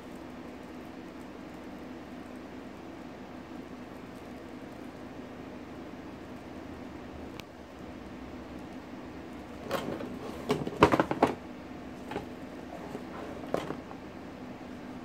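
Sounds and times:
steady low hum: 0:00.0 - 0:15.0
knocks and clatter on cardboard: 0:09.7 - 0:11.4, 0:12.0 - 0:13.9.

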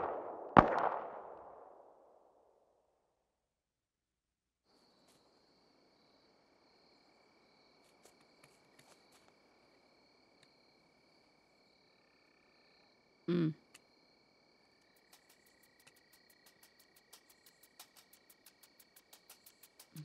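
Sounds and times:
insects trilling: 0:04.7 - 0:20.0
faint ticks: 0:10.3 - 0:10.6, 0:13.6 - 0:13.9, 0:14.8 - 0:20.0.

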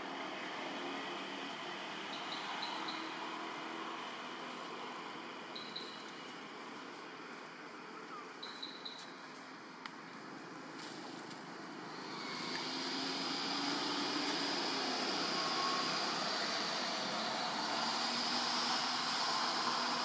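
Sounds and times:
engine drone: 0:10.7 - 0:20.0.

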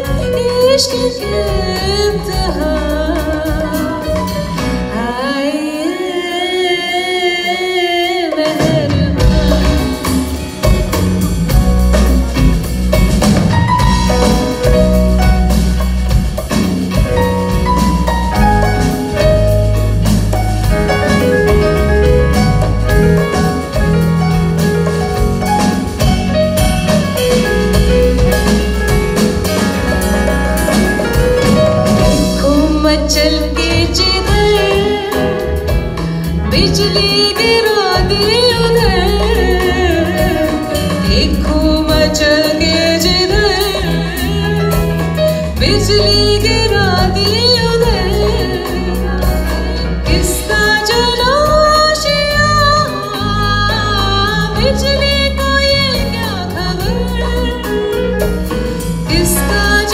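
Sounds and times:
woman singing: 0:00.0 - 0:11.0, 0:31.4 - 0:59.9
drum kit: 0:00.0 - 0:59.9
electric bass: 0:08.8 - 0:59.9.

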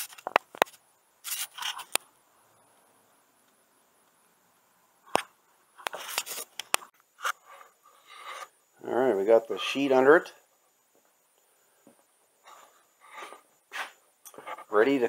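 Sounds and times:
scraping rustles: 0:01.2 - 0:01.9, 0:05.9 - 0:08.5.

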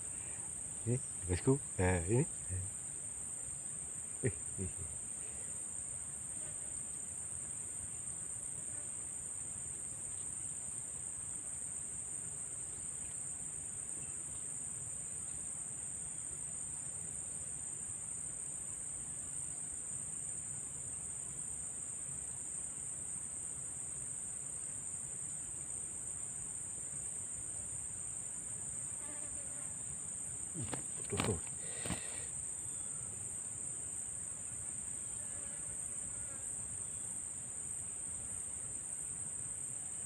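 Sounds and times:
insects chirring: 0:00.0 - 0:40.0.

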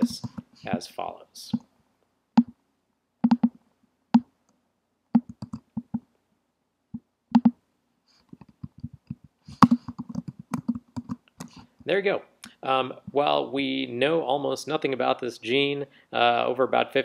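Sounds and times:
computer keyboard typing: 0:03.2 - 0:03.6, 0:05.2 - 0:06.0, 0:07.4 - 0:07.6, 0:08.4 - 0:11.5.

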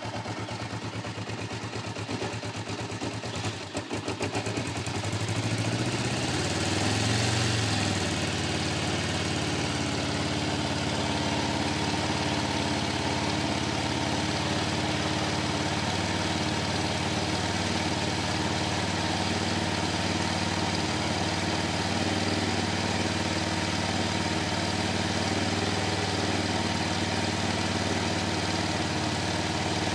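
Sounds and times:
motorcycle engine idling: 0:00.0 - 0:29.9.

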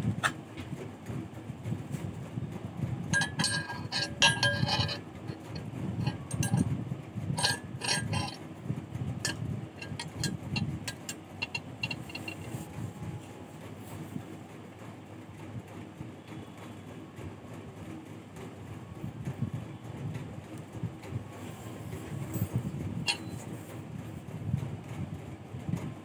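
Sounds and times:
low steady rumble: 0:00.0 - 0:16.6, 0:17.3 - 0:26.0
steel wire clinking against metal: 0:03.1 - 0:08.4, 0:09.2 - 0:13.3, 0:21.5 - 0:23.7.

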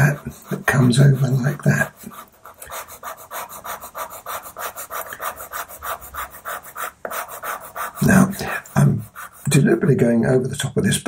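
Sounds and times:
pencil scratching on paper: 0:00.0 - 0:09.9.

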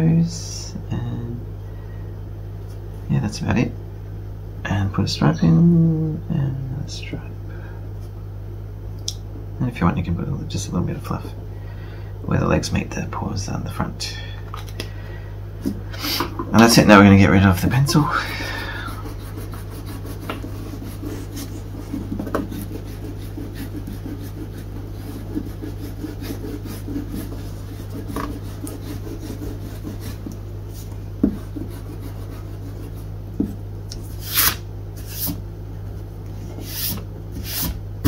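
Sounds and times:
eraser rubbing on paper: 0:17.8 - 0:33.1, 0:34.1 - 0:35.4, 0:36.5 - 0:37.8.

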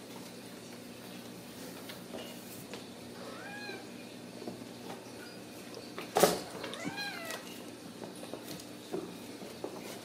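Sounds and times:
kittens mewing: 0:03.2 - 0:03.9, 0:06.7 - 0:07.4.

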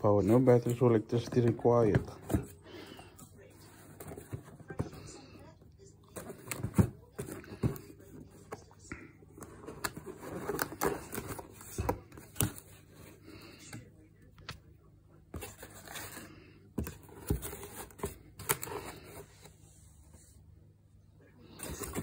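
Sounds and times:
cardboard scraping and rustling: 0:06.1 - 0:08.6, 0:09.4 - 0:13.2, 0:15.4 - 0:19.6, 0:21.6 - 0:22.0.

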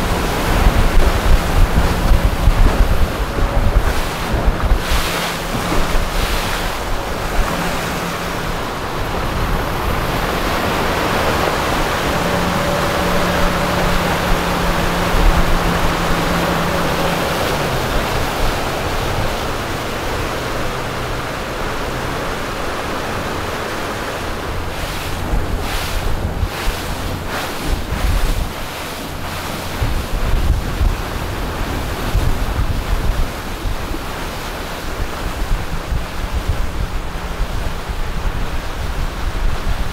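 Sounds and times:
wind on microphone: 0:00.0 - 0:39.9.

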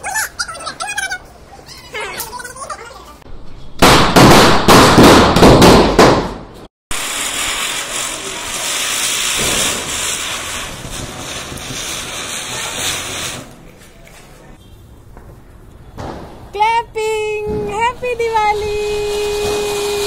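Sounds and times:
spinning firecracker hissing: 0:06.9 - 0:13.6, 0:18.5 - 0:20.0.

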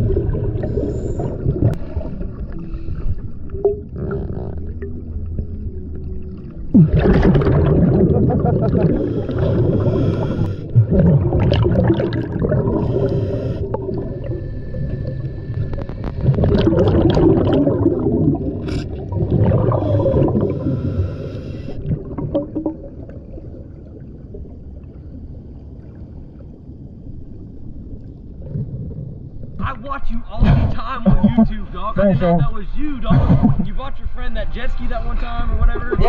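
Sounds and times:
bubbling exhalations underwater: 0:00.0 - 0:02.1, 0:03.6 - 0:05.5, 0:06.6 - 0:21.0, 0:21.7 - 0:24.5
regulator hissing inhalations: 0:09.0 - 0:10.7, 0:12.7 - 0:16.2, 0:19.8 - 0:21.8.

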